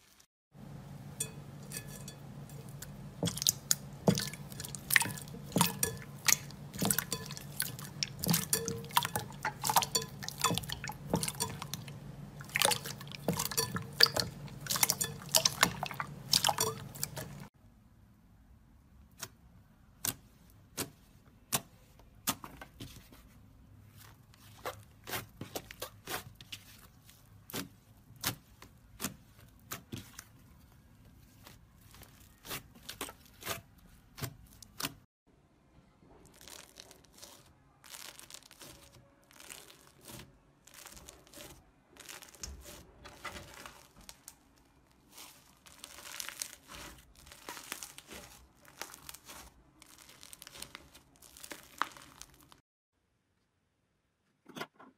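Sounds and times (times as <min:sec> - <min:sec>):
slime crackling as it tears: 0:36.2 - 0:52.6.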